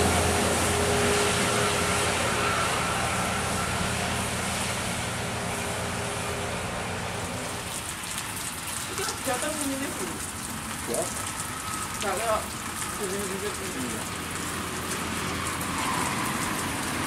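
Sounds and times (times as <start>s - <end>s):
coach driving on wet road: 0.0s - 17.0s.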